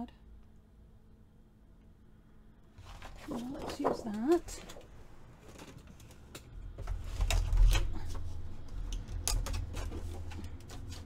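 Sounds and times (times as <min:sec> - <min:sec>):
paper sliding and bumping: 0:02.8 - 0:04.8.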